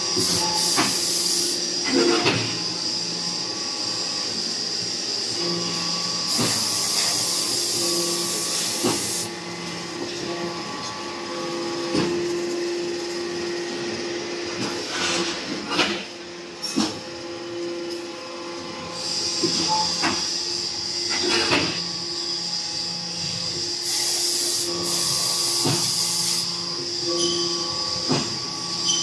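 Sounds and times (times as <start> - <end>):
machine motor hum: 0.0 - 29.0
hiss: 0.2 - 1.6, 6.3 - 9.3, 23.8 - 26.6
loud hissing bursts: 6.3 - 9.3, 23.8 - 26.5
high steady squeal: 23.2 - 27.8.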